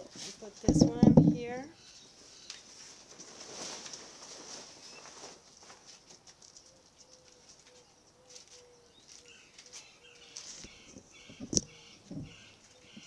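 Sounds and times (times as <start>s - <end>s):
birds chirping faintly: 0.4s - 4.1s, 4.7s - 13.0s
fabric cover rustling: 2.6s - 6.5s.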